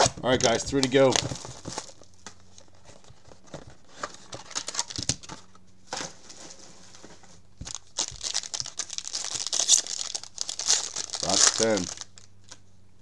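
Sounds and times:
plastic packaging crinkling: 0.0s - 2.8s, 4.0s - 5.5s, 7.6s - 12.6s.

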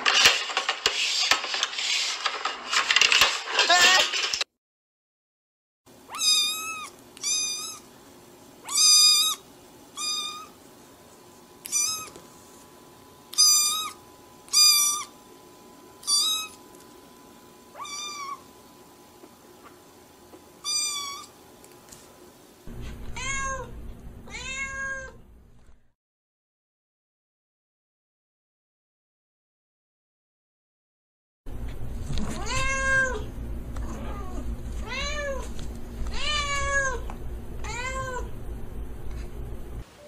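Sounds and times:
cat meowing: 6.1s - 7.9s, 10.0s - 10.5s, 11.6s - 12.2s, 17.7s - 18.4s, 24.3s - 25.2s.

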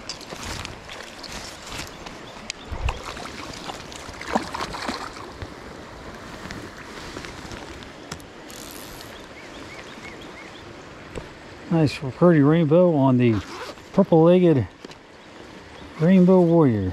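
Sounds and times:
fish thrashing and splashing: 0.0s - 5.5s
creek water running over stones: 0.0s - 16.9s.

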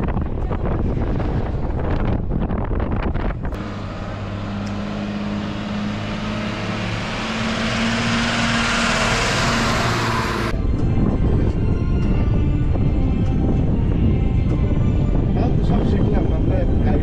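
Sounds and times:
wind and road noise in car: 0.0s - 17.0s
truck diesel engine passing: 3.6s - 10.6s.

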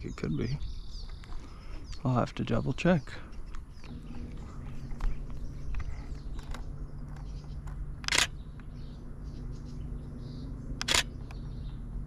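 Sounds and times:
faint bird chirps: 0.0s - 7.7s
camera shutter click: 8.0s - 8.4s, 10.8s - 11.1s.

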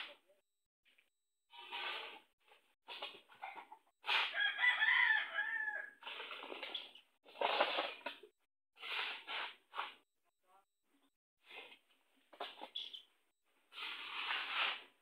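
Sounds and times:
rooster crowing: 4.3s - 6.0s.

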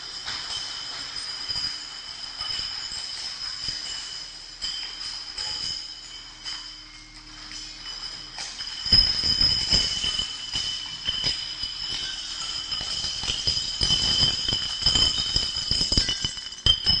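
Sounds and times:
glass bottles clinking: 0.0s - 17.0s
steady high tones: 0.0s - 17.0s.

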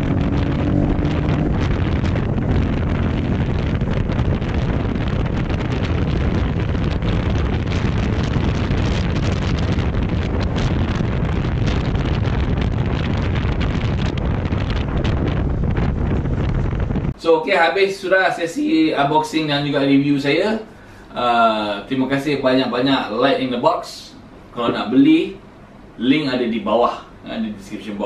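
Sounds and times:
motorcycle running: 0.0s - 17.1s
wind buffeting microphone: 0.0s - 20.6s.

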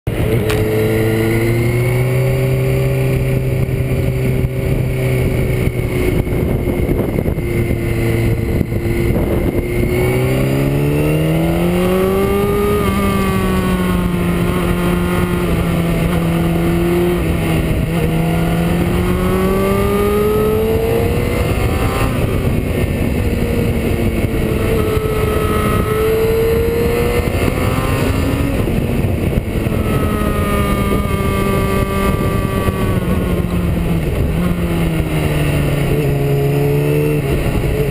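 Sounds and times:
motorcycle engine running: 0.1s - 37.9s
wind noise on microphone: 0.1s - 37.9s.

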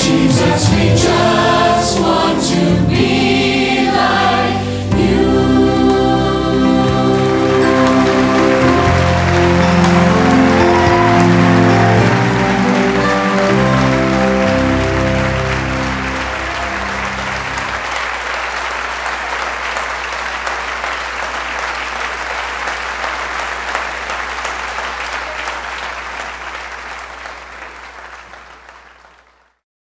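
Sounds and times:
held music chord: 0.0s - 18.0s
audience applauding: 3.9s - 29.6s.

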